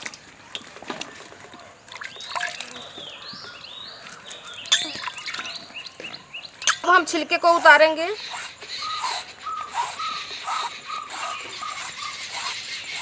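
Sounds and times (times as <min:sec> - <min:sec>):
water splashing and dripping: 0:00.0 - 0:07.0
birds chirping: 0:01.0 - 0:13.0.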